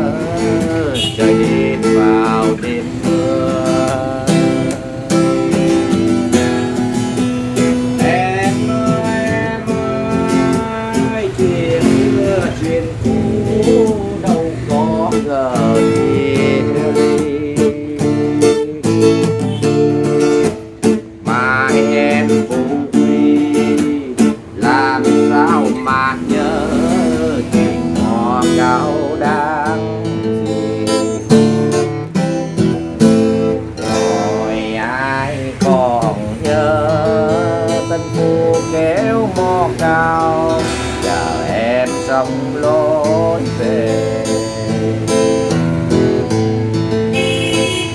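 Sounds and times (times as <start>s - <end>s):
acoustic guitar playing: 0.0s - 47.9s.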